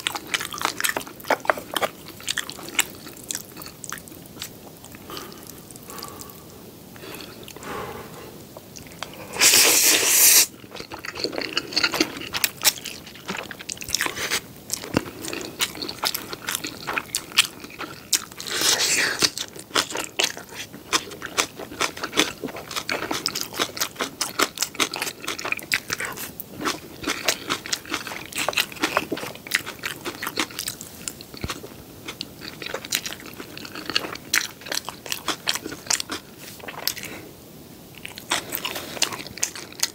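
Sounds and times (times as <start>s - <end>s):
wet chewing with crisp crunching: 0.0s - 6.4s, 8.5s - 37.3s, 37.9s - 39.9s
person slurping noodles: 9.2s - 10.5s.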